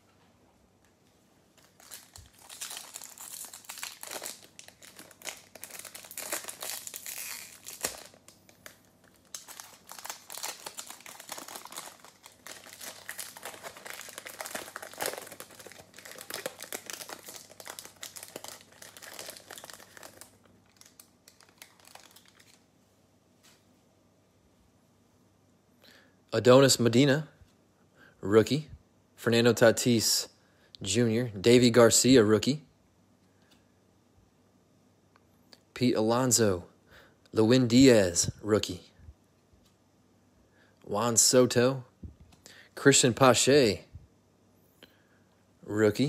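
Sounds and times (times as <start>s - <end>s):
foil wrapper crinkling and tearing: 1.6s - 22.6s.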